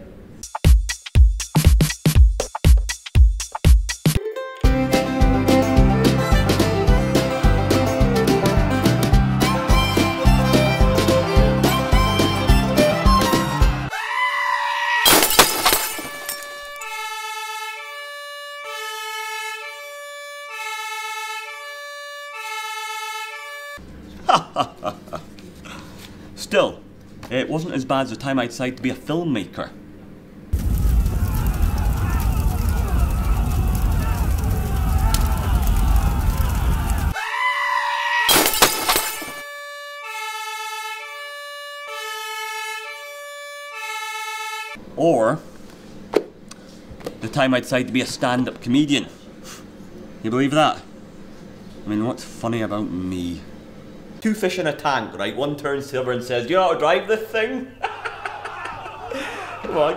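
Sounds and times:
music: 0.4s - 13.9s, 16.7s - 23.8s, 39.4s - 44.8s
two-tone emergency siren: 16.6s - 23.8s, 39.4s - 44.8s
loud burst of noise: 30.6s - 37.1s.

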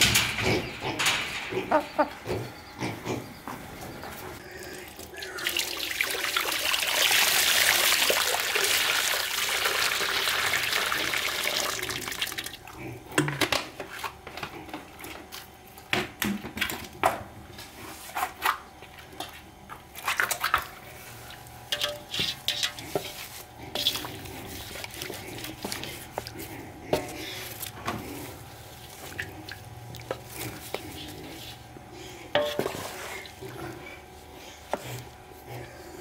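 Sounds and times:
water pouring: 4.9s - 12.6s.

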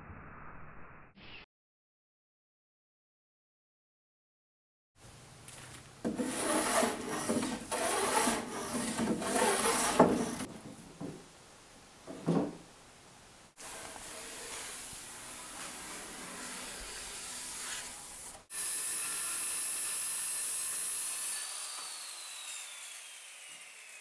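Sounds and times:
hand plane shaving wood: 6.1s - 10.5s, 13.6s - 18.5s.

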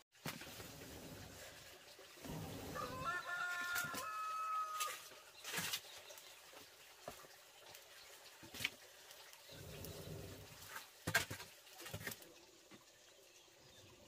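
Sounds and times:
rooster crowing: 2.8s - 5.1s.

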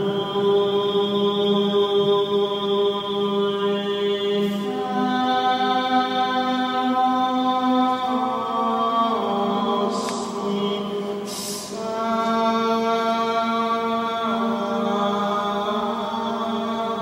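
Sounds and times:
chanting voices in reverberant church: 0.0s - 17.0s
breathy hisses: 11.2s - 11.9s.

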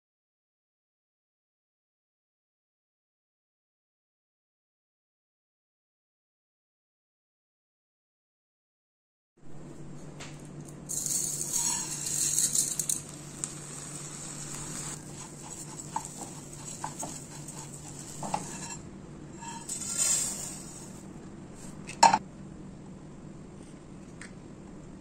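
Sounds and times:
steady low hum: 9.4s - 25.0s
utensils and dishes clinking: 10.9s - 13.8s, 19.4s - 21.0s
rustling: 10.9s - 18.8s, 19.4s - 21.8s.

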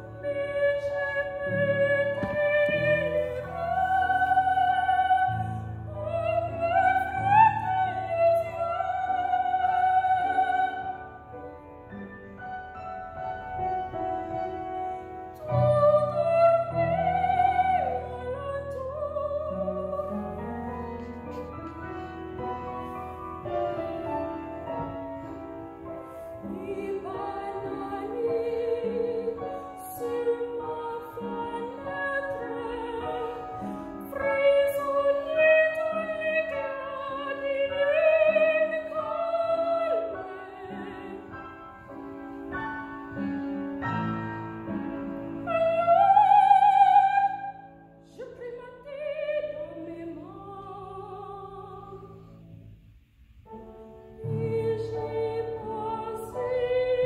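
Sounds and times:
piano accompaniment: 0.0s - 57.0s
woman singing operatically: 15.5s - 20.9s, 26.5s - 41.3s.

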